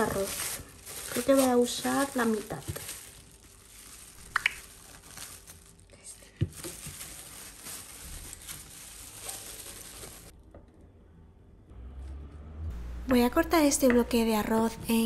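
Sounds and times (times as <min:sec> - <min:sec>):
crinkling and rustling: 0:00.0 - 0:10.4.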